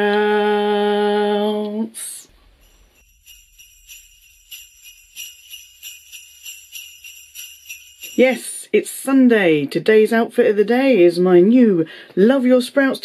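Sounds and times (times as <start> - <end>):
jingle bells shaken: 2.2 - 8.7.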